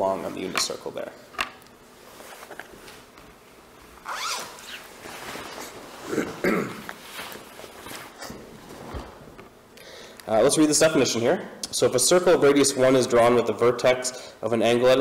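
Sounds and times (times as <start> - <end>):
soft rustling handling noise: 1.9 - 9.6.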